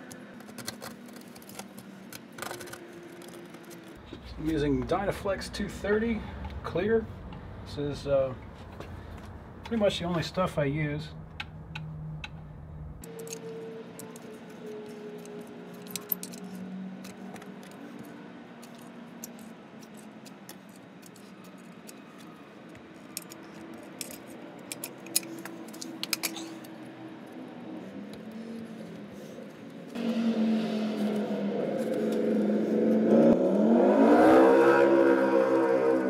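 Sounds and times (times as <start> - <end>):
caulking gun clicks and rattles: 23.0 - 26.7.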